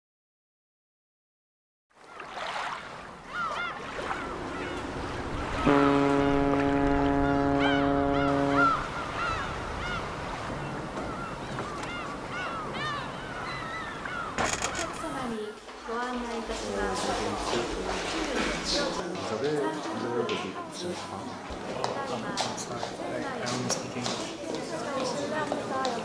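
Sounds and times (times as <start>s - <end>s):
gulls calling: 3.1s - 15.5s
waterfront hiss: 5.4s - 9.1s
ship's horn blast: 5.4s - 9.4s.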